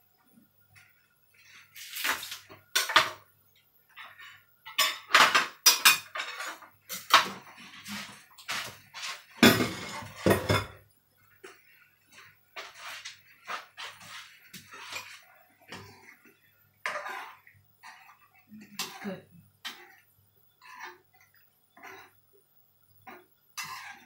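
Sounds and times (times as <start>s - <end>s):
crockery and utensils clattering: 4.1s - 8.7s, 9.4s - 10.8s.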